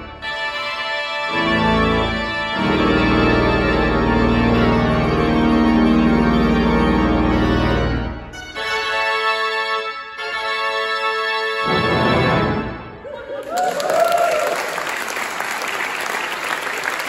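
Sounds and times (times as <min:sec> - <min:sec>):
pipe organ chords: 0:00.0 - 0:13.2
applause: 0:13.4 - 0:17.0.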